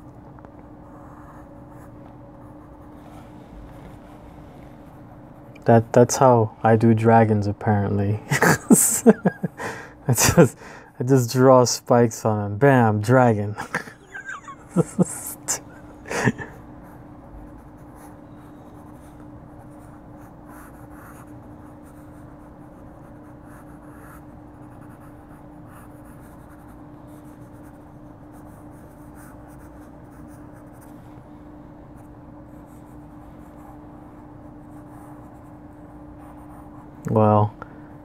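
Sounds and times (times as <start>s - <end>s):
pencil scratching on paper: 16.4s - 31.0s.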